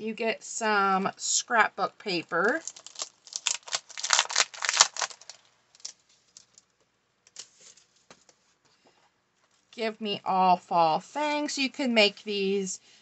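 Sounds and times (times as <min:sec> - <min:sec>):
plastic sleeve crinkling: 0:02.3 - 0:08.6.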